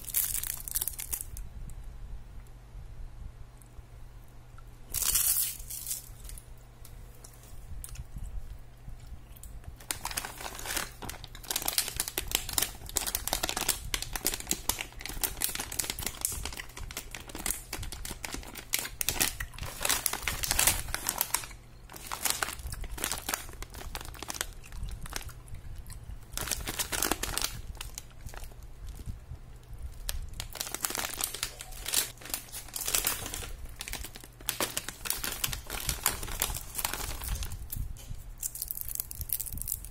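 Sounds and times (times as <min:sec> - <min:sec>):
plastic bags crinkling: 0:00.0 - 0:01.4, 0:09.8 - 0:29.2, 0:29.9 - 0:37.8.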